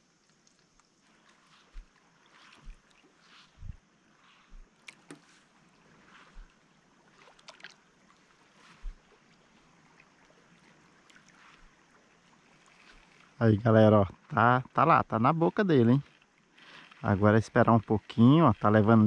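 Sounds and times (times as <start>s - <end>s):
river water flowing: 0.0s - 19.0s
soft low bumps: 1.4s - 6.6s, 8.7s - 9.1s.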